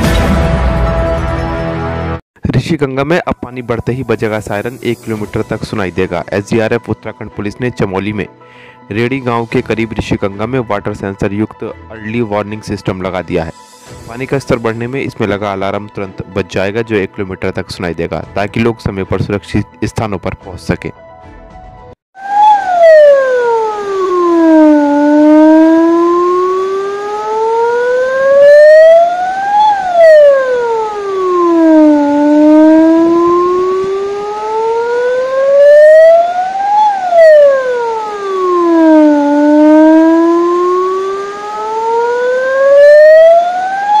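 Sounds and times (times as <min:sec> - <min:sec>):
electronic warning siren wailing: 0:22.2 - 0:44.0.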